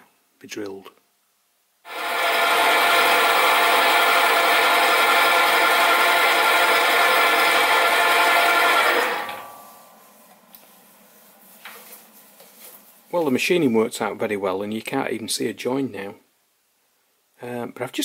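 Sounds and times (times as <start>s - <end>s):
lathe running with a whine: 1.9s - 9.5s.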